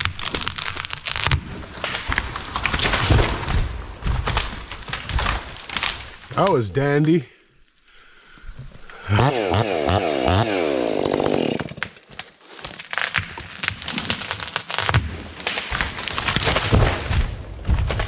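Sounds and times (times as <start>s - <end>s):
wood cracking and snapping: 0.0s - 6.6s, 8.4s - 18.0s
chainsaw revving: 9.0s - 11.8s.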